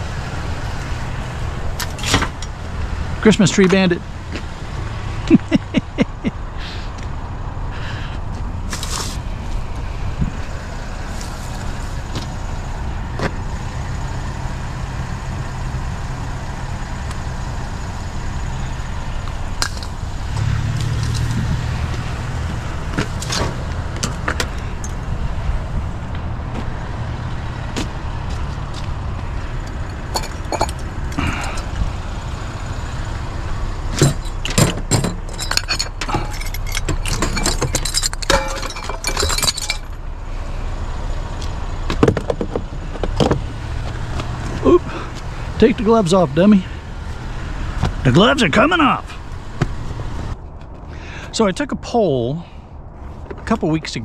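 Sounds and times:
truck engine running: 0.0s - 54.0s
metallic clinks and knocks: 19.6s - 21.4s, 29.6s - 31.6s, 33.9s - 40.0s.

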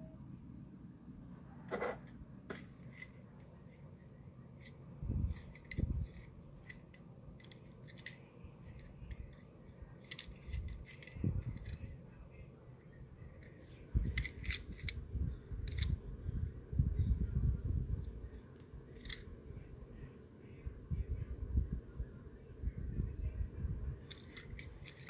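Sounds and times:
small handling clicks: 4.6s - 11.9s, 13.4s - 15.0s, 15.6s - 16.0s, 18.6s - 19.3s, 24.0s - 25.0s.

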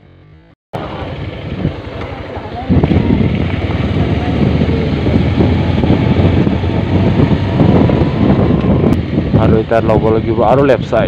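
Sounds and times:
motorcycle engine running: 0.0s - 11.0s
wind buffeting microphone: 0.8s - 11.0s.

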